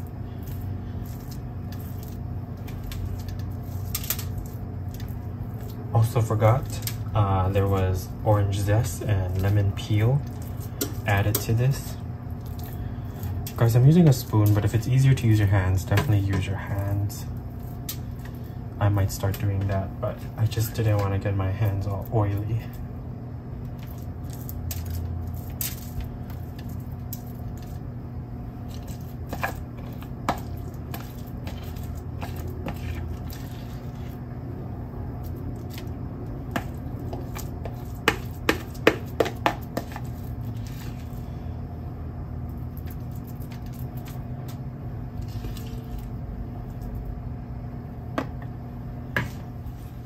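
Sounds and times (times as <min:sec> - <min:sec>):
spoon squishing and scraping butter: 0:00.0 - 0:16.1, 0:23.6 - 0:27.9, 0:28.6 - 0:34.3, 0:35.3 - 0:41.4, 0:45.2 - 0:46.9
steady low hum: 0:00.0 - 0:50.0.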